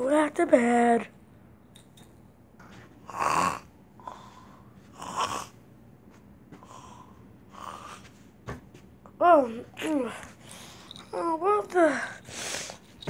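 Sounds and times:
person snoring: 0:03.0 - 0:05.6.

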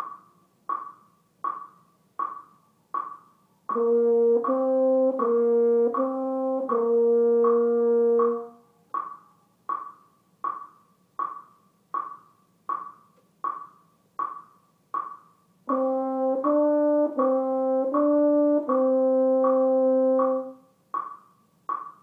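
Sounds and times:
metronome clicking: 0:00.0 - 0:22.0
french horn playing notes: 0:03.7 - 0:08.6, 0:15.7 - 0:20.6.

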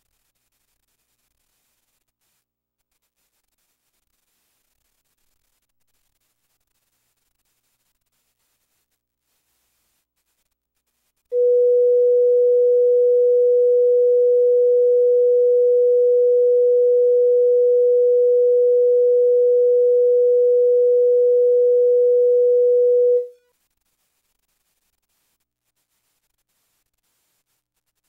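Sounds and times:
steady test tone: 0:11.4 - 0:23.4.

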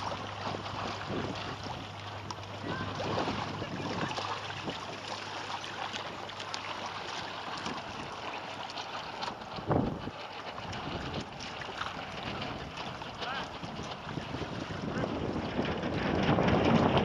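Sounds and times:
wind buffeting the microphone: 0:00.0 - 0:05.2, 0:09.4 - 0:17.0
steady low hum: 0:00.0 - 0:16.6
water lapping against a hull: 0:00.0 - 0:17.0.

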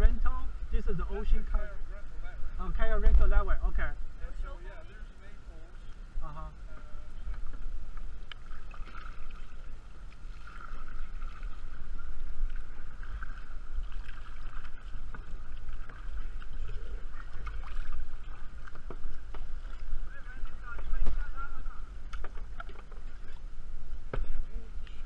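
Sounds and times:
wind rumble on microphone: 0:00.0 - 0:04.6, 0:06.0 - 0:25.0
water splashing around kayak: 0:05.8 - 0:25.0.

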